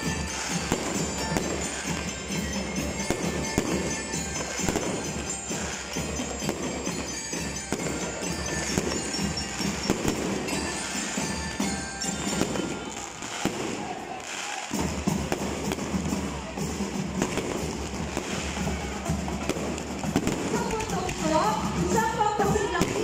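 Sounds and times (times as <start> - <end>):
fireworks popping and crackling: 0.0 - 23.0
music over loudspeakers: 0.0 - 23.0.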